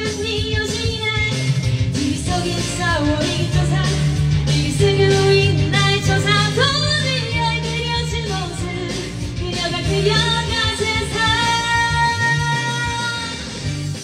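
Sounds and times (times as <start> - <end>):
woman singing into microphone: 0.0 - 13.7
rock band backing track: 0.0 - 14.0.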